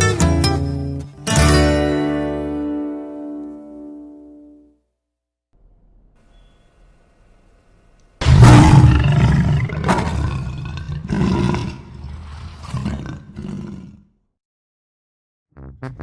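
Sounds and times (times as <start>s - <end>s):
lion roaring: 8.2s - 14.2s.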